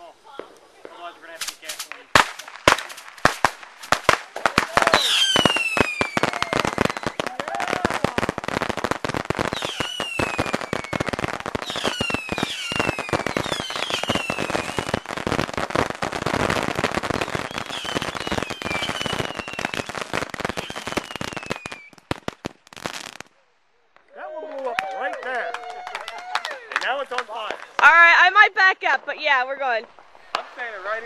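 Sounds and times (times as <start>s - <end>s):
fireworks crackling and banging: 0.0s - 31.0s
falling firework whistles: 0.2s - 23.2s.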